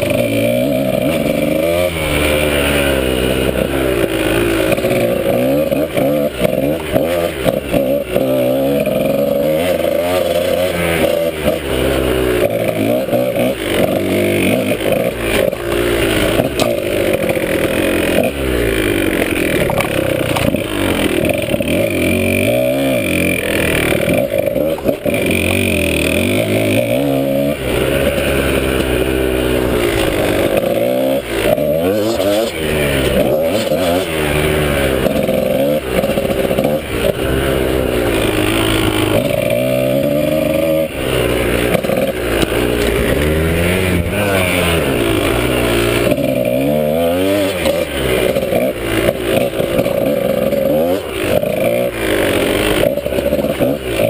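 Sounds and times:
dirt bike engine revving: 0:00.0 - 0:54.0
bike knocks and rattles: 0:12.4 - 0:25.6.

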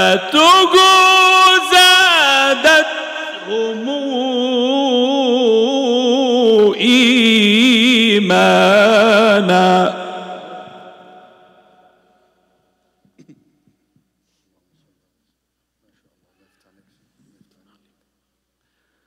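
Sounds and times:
man reciting melodically: 0:00.0 - 0:11.9
short breath: 0:18.6 - 0:19.0.

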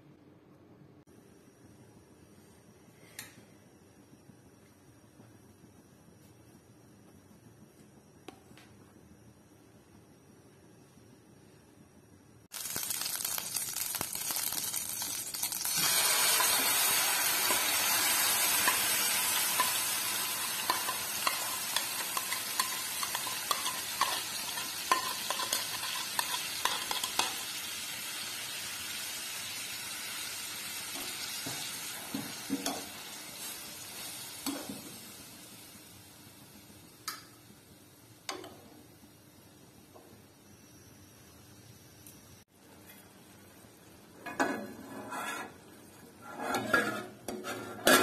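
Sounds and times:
chicken sizzling in hot fat: 0:12.5 - 0:39.1
spatula stirring in pan: 0:15.7 - 0:27.6, 0:44.3 - 0:48.0.

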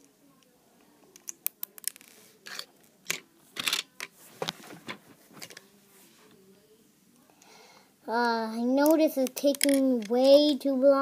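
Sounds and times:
plastic toy bricks clicking: 0:01.1 - 0:04.1, 0:08.8 - 0:10.2.

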